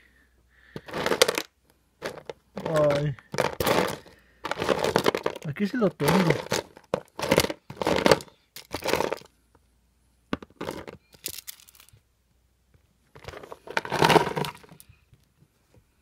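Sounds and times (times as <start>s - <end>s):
plastic toy figures clattering: 0.8s - 9.3s, 10.4s - 12.0s, 13.1s - 14.9s.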